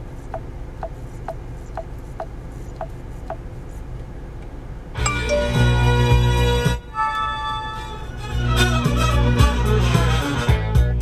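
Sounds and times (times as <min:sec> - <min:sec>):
steady low hum: 0:00.0 - 0:10.5
music from car stereo: 0:05.0 - 0:11.0.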